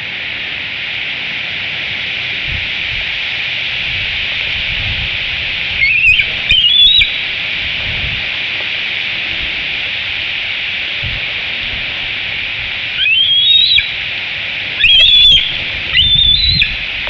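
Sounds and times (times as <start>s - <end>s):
steady high hiss: 0.0s - 17.0s
eagle chittering calls: 5.7s - 7.4s, 12.9s - 17.0s.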